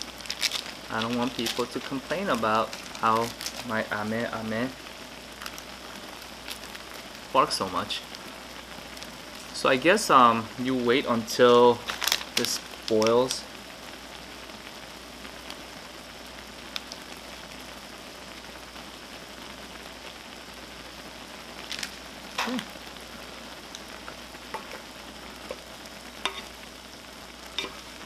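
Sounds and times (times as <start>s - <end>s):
packet crinkling: 0.0s - 4.5s, 6.4s - 6.8s, 11.7s - 13.4s, 21.6s - 22.6s
broth bubbling in pot: 0.0s - 28.0s.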